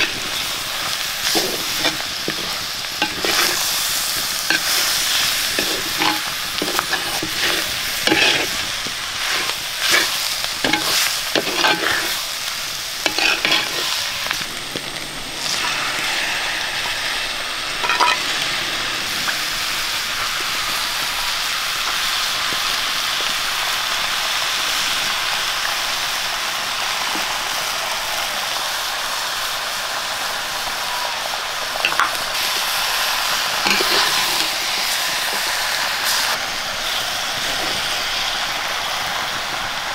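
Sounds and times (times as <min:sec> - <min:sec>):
spoon scraping a pan: 0:00.0 - 0:12.2, 0:13.0 - 0:14.4, 0:17.8 - 0:18.2, 0:31.8 - 0:32.7, 0:33.6 - 0:35.5
food sizzling in oil: 0:00.0 - 0:39.9.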